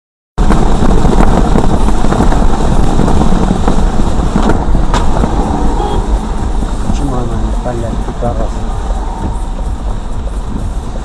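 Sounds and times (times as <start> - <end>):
rain and spray on car body: 0.4 - 9.0
tyres rushing on wet road: 0.4 - 11.0.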